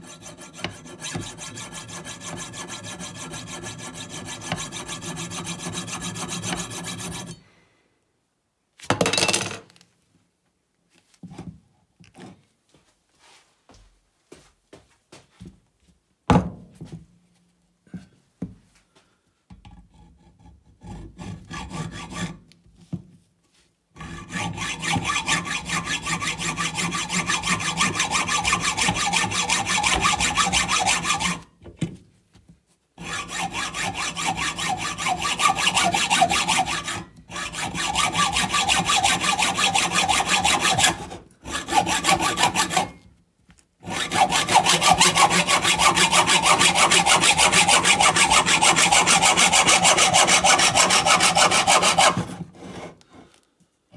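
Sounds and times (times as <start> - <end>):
hacksaw cutting metal: 0.0 - 7.4, 24.0 - 31.4, 33.0 - 43.0, 43.8 - 53.0.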